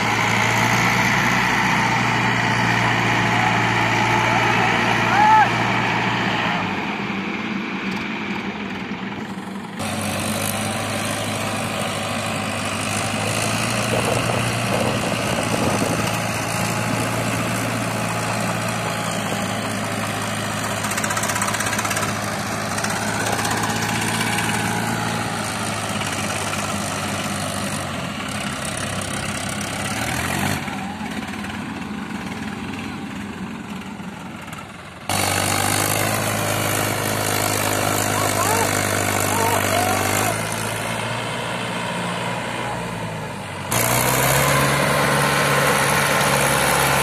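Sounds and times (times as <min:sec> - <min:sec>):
tractor diesel engines straining: 0:00.0 - 0:47.0.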